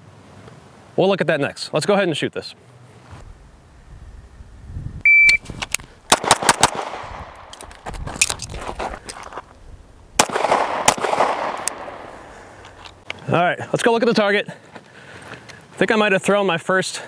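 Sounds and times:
shot timer beep: 0:05.0 - 0:05.4
reload clicks: 0:05.3 - 0:08.6, 0:10.2 - 0:12.1
handgun shots: 0:06.1 - 0:07.7, 0:10.2 - 0:12.1.

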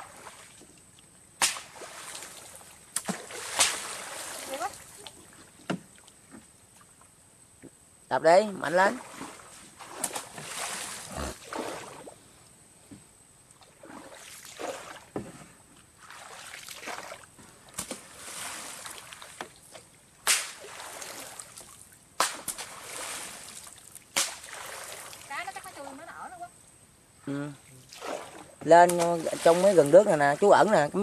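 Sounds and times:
wooden pole slapping water: 0:01.4 - 0:06.2, 0:08.8 - 0:12.1, 0:13.6 - 0:15.4, 0:16.0 - 0:25.3, 0:27.9 - 0:30.8.

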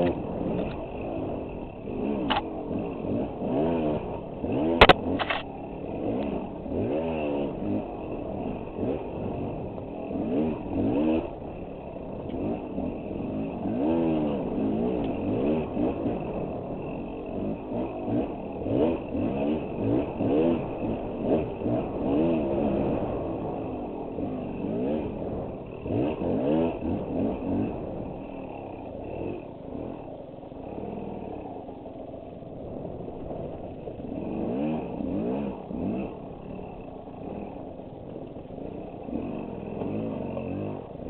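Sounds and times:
dirt bike engine revving: 0:00.0 - 0:41.0.

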